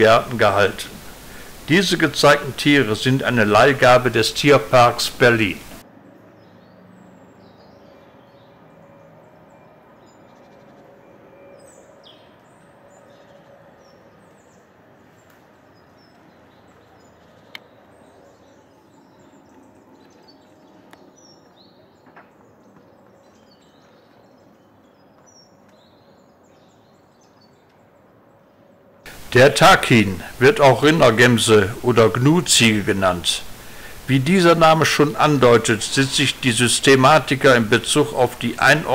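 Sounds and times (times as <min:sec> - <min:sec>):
small birds chirping: 0:00.0 - 0:05.8, 0:11.6 - 0:28.5, 0:29.1 - 0:38.9
steady low hum: 0:00.0 - 0:05.8, 0:29.1 - 0:38.9.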